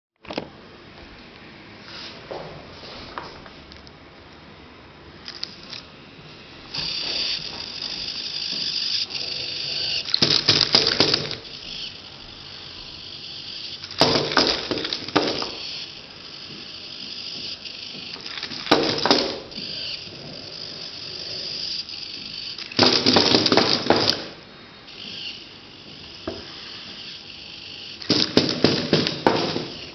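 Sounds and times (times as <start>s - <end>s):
small electric motors whining: 5.2s - 29.9s
wooden parts clattering: 13.8s - 15.6s, 22.6s - 24.3s.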